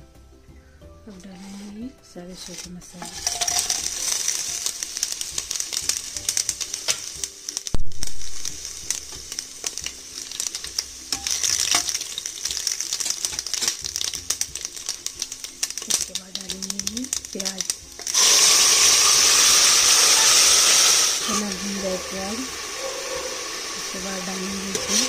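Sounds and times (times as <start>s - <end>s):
spices sizzling in hot oil: 0.0s - 25.0s
spoon stirring in pot: 2.9s - 7.2s.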